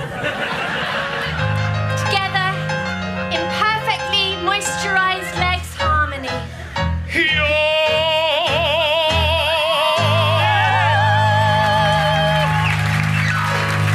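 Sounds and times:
man singing low note: 7.1 - 12.4.

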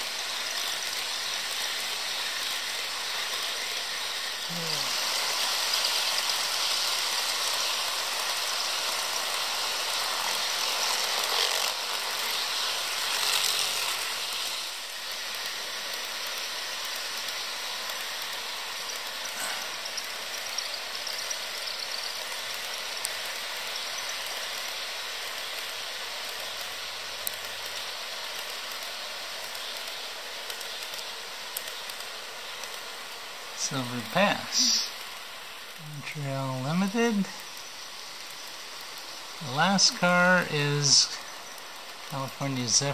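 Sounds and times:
small clicks of cars on track: 0.0 - 33.6, 34.8 - 35.9, 36.7 - 42.9
model train motors whirring: 0.0 - 42.9.

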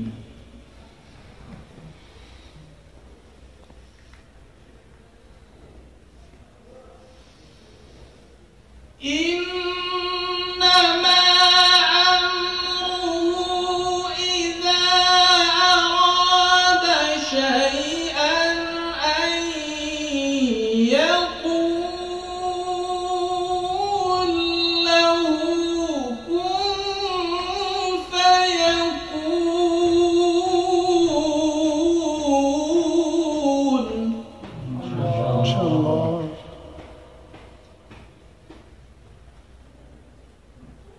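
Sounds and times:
man chanting melodic recitation: 9.1 - 37.2.

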